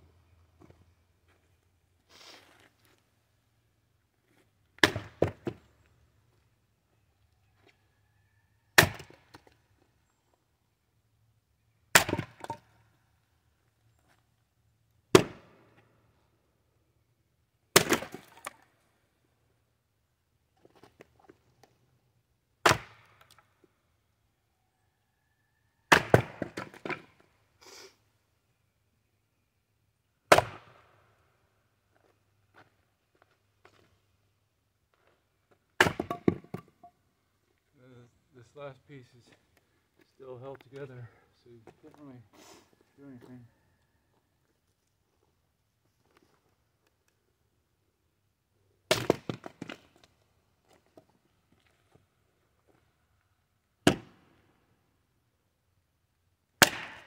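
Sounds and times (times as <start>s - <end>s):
axe cracking wood: 4.8s - 5.6s, 8.8s - 9.5s, 11.9s - 12.6s, 15.1s - 15.6s, 17.7s - 18.6s, 22.6s - 23.4s, 25.9s - 27.1s, 30.3s - 30.8s, 35.8s - 36.7s, 48.9s - 49.9s, 53.8s - 54.2s, 56.6s - 57.0s.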